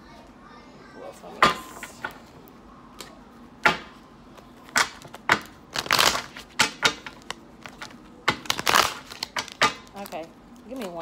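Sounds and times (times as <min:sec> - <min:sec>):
cards shuffling: 0:04.8 - 0:10.1.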